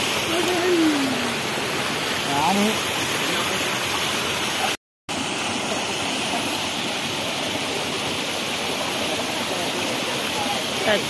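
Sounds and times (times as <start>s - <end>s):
stream running over rocks: 0.0s - 11.0s.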